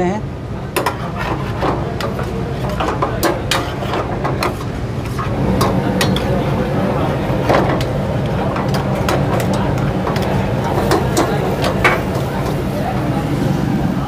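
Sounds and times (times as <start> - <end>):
gas burner roar: 0.1 - 14.0
metal ladle scraping steel pan: 0.8 - 6.4.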